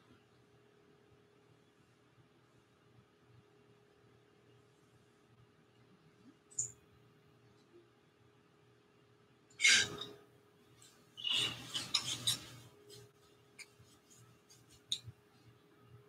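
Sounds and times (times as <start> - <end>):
paintbrush scrubbing paint: 10.8 - 15.2.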